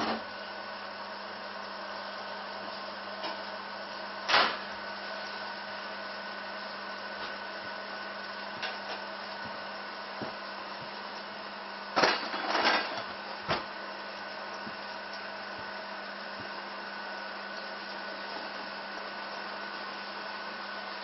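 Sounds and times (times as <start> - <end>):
household machine humming: 0.0 - 21.0.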